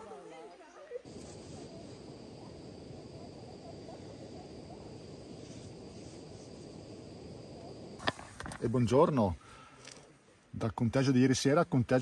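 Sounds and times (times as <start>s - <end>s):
insects trilling: 1.0s - 9.0s
low rushing background: 1.1s - 9.4s.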